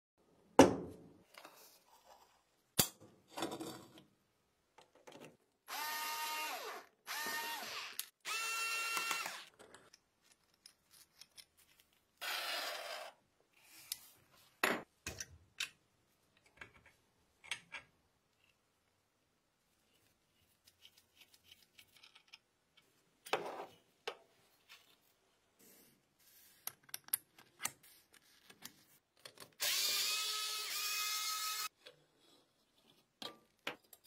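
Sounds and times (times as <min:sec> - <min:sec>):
rotary tool whining: 0:05.7 - 0:09.5, 0:29.6 - 0:31.7.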